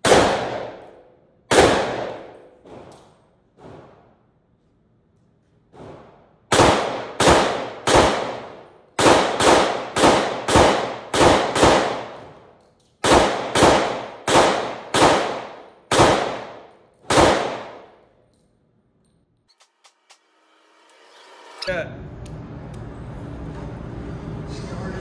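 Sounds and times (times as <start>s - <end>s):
pistol shots echoing indoors: 0.0s - 19.2s.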